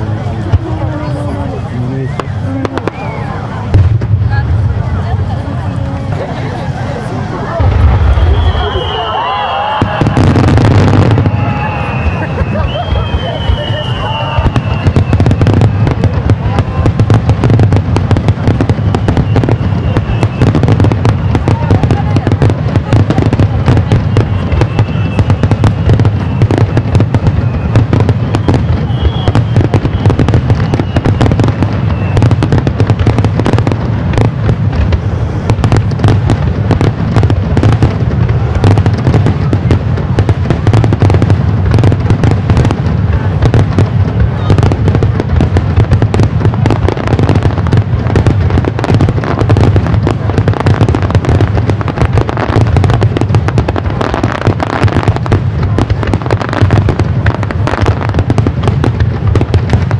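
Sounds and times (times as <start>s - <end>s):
low rumble of booms: 0.0s - 5.8s, 7.5s - 9.0s, 9.7s - 59.9s
fireworks cracking: 0.0s - 59.9s.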